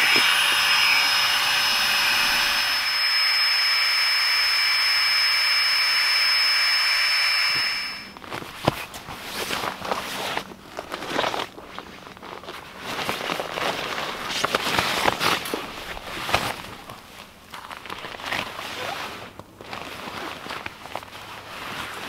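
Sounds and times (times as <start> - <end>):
air pump whining: 0.0 - 8.3.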